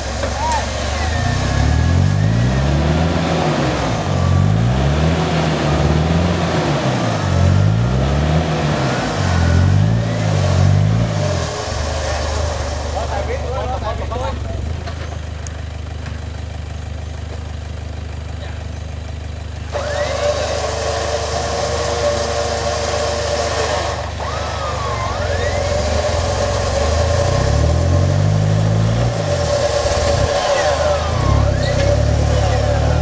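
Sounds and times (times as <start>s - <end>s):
truck engine droning: 0.0s - 33.0s
winch whining: 19.7s - 33.0s.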